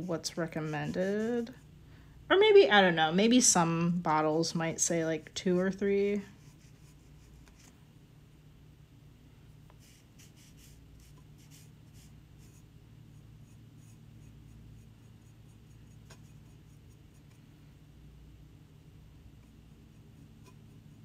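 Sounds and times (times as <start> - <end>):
low steady hum: 0.0 - 21.0
brush strokes scratching ceramic: 0.2 - 1.7, 5.5 - 7.7, 9.6 - 17.5, 19.4 - 21.0.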